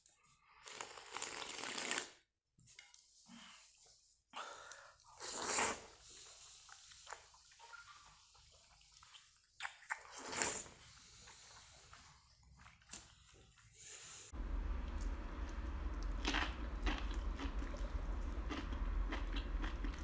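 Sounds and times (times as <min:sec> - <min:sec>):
person slurping noodles: 0:00.6 - 0:02.2, 0:05.1 - 0:06.8, 0:09.7 - 0:11.8
wet chewing: 0:14.9 - 0:20.0.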